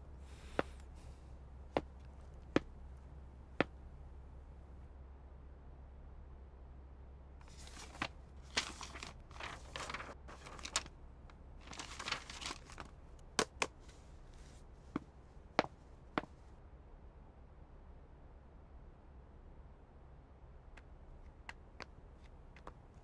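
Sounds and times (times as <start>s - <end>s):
paper and plastic folder rustling: 7.4s - 11.0s, 11.6s - 14.6s.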